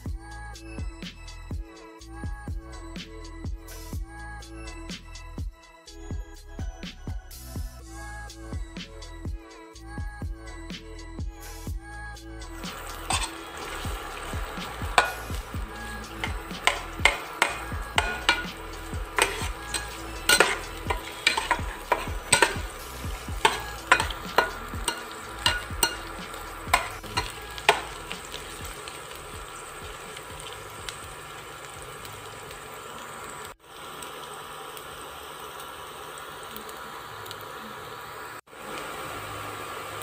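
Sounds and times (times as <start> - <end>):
onion sizzling in hot oil: 12.5 - 40.0
spatula scraping a pan: 12.6 - 29.2.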